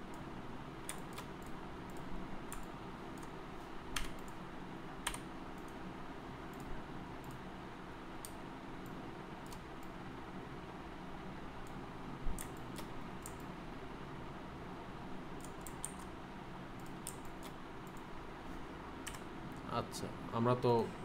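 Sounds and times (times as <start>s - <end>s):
faint steady hum: 0.0s - 21.0s
mouse and keyboard clicks: 12.4s - 13.5s.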